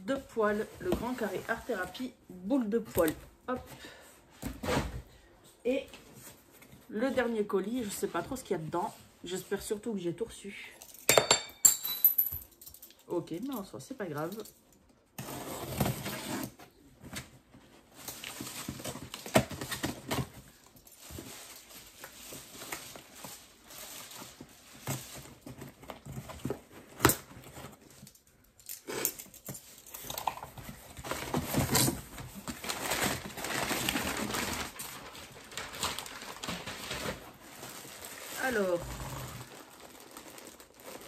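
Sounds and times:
packaging rustling and crinkling: 15.2s - 28.4s, 29.2s - 41.0s.

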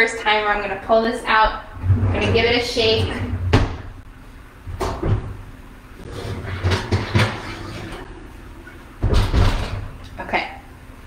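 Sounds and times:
oven door opening: 1.8s - 3.9s.

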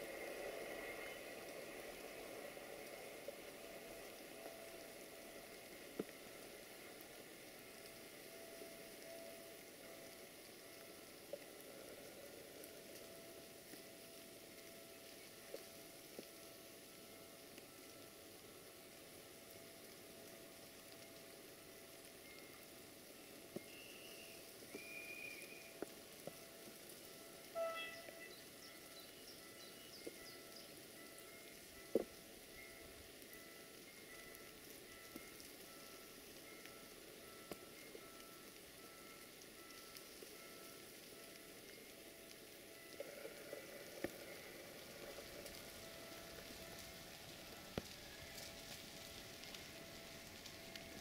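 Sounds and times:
distant train running: 0.0s - 14.4s, 26.5s - 51.0s
faint steady tone: 0.0s - 51.0s
hiss of wet snow falling: 0.0s - 51.0s
small ticks: 0.0s - 51.0s
faint high whistles: 23.6s - 25.9s, 27.5s - 31.9s.

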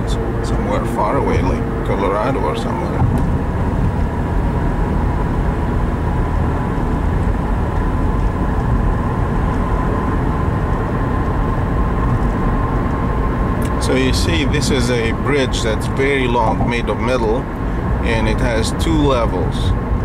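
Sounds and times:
car driving interior rumble: 0.0s - 20.0s.

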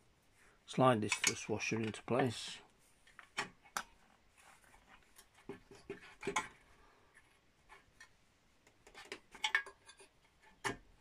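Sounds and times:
light metallic clicks and knocks: 1.0s - 2.4s.

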